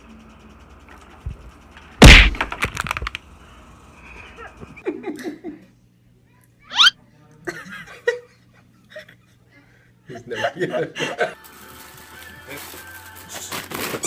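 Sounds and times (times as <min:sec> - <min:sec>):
human laughter: 0:04.3 - 0:05.8, 0:07.4 - 0:11.4.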